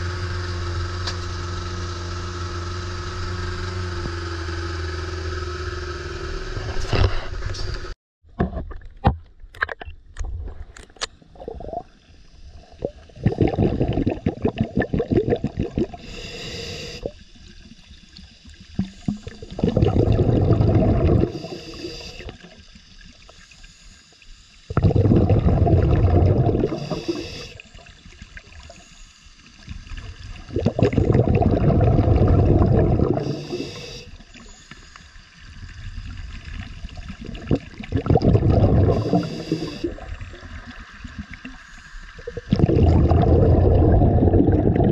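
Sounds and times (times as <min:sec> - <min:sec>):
underwater bubbles gurgling: 0:10.3 - 0:23.8, 0:24.6 - 0:44.9
regulator hiss: 0:16.0 - 0:17.5, 0:21.2 - 0:24.7, 0:26.7 - 0:29.6, 0:33.1 - 0:36.4, 0:38.9 - 0:40.2, 0:41.4 - 0:42.3.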